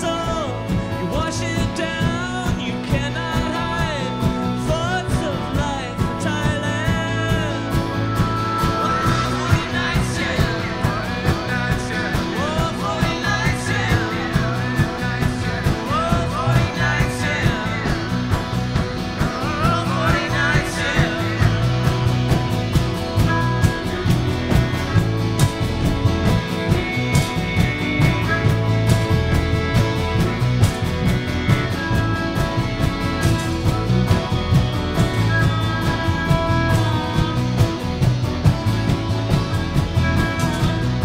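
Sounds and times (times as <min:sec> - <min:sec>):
person singing: 0:00.0 - 0:25.1
harmonica: 0:00.0 - 0:41.0
strummed acoustic guitar: 0:00.0 - 0:41.0
steady beat: 0:05.6 - 0:41.0.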